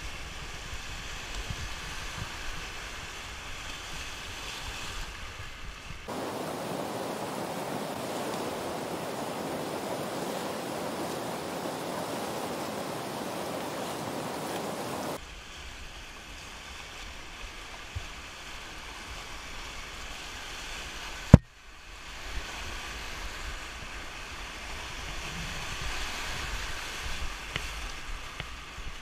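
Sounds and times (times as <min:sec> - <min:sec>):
river rapids rushing: 0:06.1 - 0:15.2.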